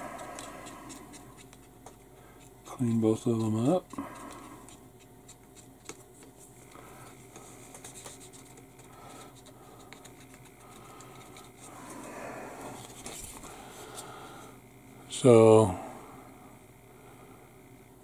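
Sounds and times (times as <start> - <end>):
cotton swab rubbing plastic: 0.0 - 6.5, 7.3 - 12.0
steady low hum: 0.0 - 18.0.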